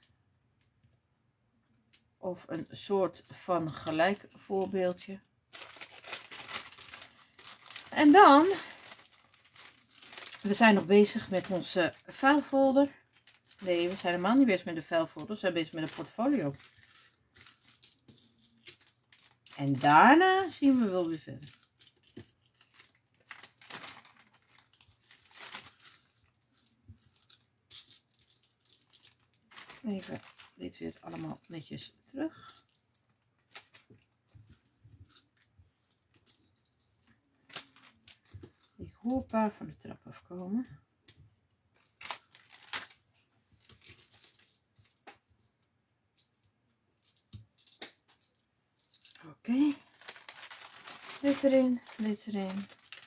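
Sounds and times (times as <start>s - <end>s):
plastic bag crinkling: 3.2s - 39.4s, 41.7s - 45.3s, 47.0s - 53.0s.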